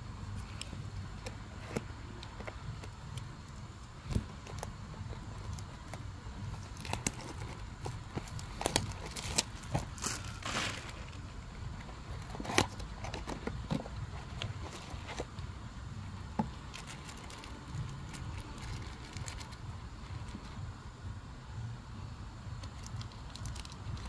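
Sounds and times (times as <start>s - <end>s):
steady low hum: 0.0s - 24.0s
packaging clicks and taps: 4.0s - 10.2s
packaging crinkle: 4.0s - 15.3s, 16.7s - 19.6s, 22.6s - 24.0s.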